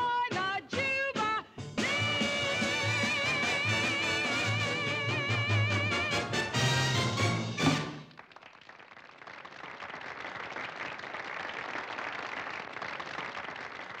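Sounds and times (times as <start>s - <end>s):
band music final chord: 1.8s - 8.1s
audience applauding: 1.8s - 14.0s.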